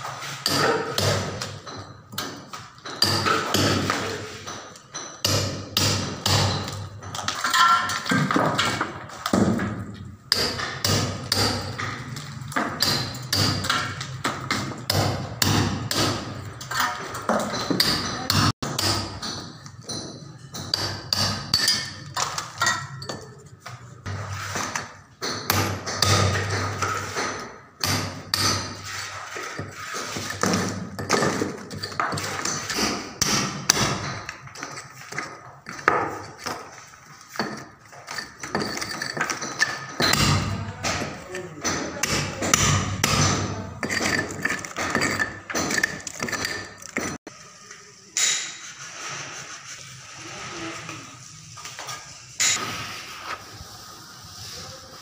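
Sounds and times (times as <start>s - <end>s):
hammer striking chisel into brick: 0.4s - 8.5s, 9.2s - 23.2s, 25.2s - 28.9s, 29.5s - 47.2s.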